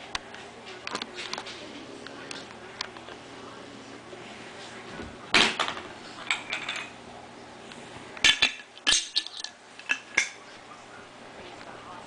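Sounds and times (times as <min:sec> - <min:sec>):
utensil clinking on dish: 0:06.3 - 0:07.0, 0:08.2 - 0:10.4.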